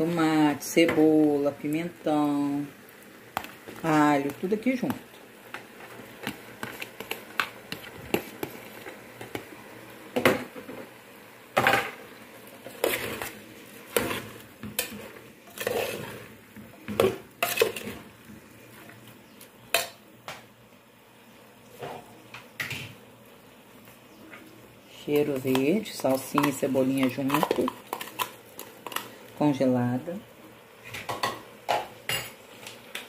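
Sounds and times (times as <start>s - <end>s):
metal spoon scraping pot: 13.9s - 16.3s.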